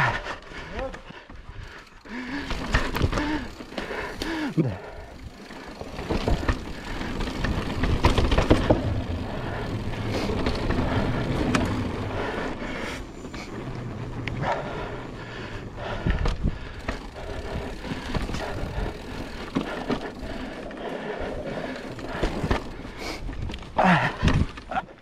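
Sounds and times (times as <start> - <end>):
bike rattling with sharp knocks: 2.1 - 4.5, 5.2 - 14.2, 21.5 - 23.0
tyres rumbling over rock: 5.7 - 12.5.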